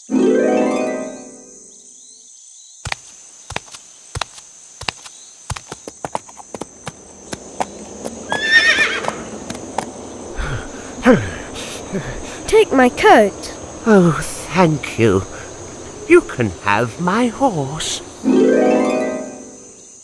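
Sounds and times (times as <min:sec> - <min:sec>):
horse hooves clip-clopping: 0:02.9 - 0:10.0
horse whinnying: 0:08.3 - 0:09.2.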